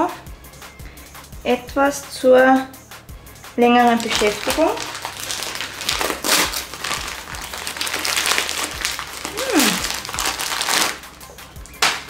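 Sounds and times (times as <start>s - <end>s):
wrapping paper crinkling: 3.9s - 12.0s.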